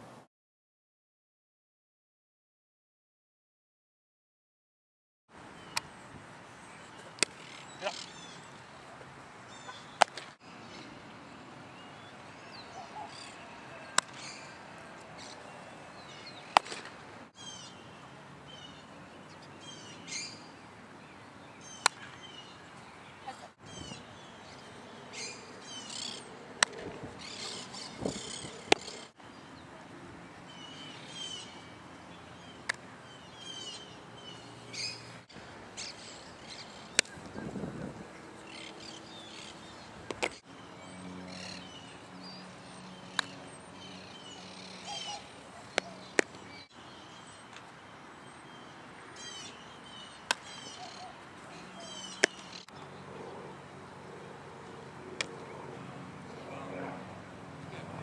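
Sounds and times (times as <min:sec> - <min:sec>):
songbirds chirping: 0:05.4 - 0:58.0
sharp knocks of softballs: 0:07.1 - 0:07.4, 0:10.0 - 0:10.4, 0:13.9 - 0:14.2, 0:16.5 - 0:17.0, 0:21.8 - 0:22.2, 0:26.6 - 0:27.0, 0:45.8 - 0:46.4, 0:50.2 - 0:50.5, 0:52.2 - 0:52.5.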